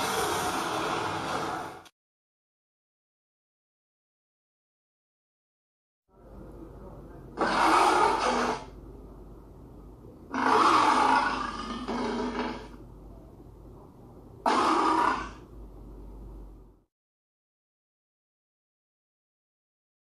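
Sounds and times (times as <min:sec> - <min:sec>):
big cat roaring: 0:07.4 - 0:08.7, 0:10.3 - 0:12.8, 0:14.4 - 0:15.5.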